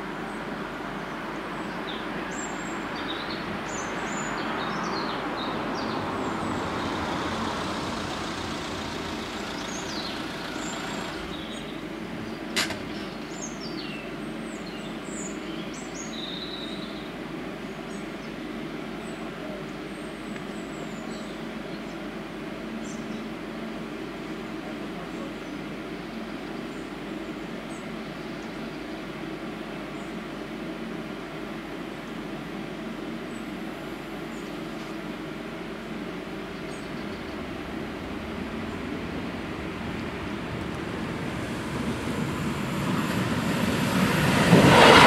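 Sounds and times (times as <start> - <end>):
traffic rumble: 0.0 - 14.6, 23.8 - 45.0
small birds chirping: 0.2 - 18.4, 34.2 - 44.4
sharp click: 12.5 - 13.0.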